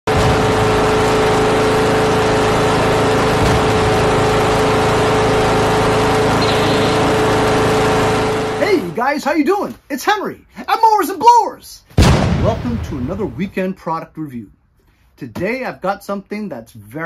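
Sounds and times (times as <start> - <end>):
garden tractor engine droning: 0.1 - 9.1.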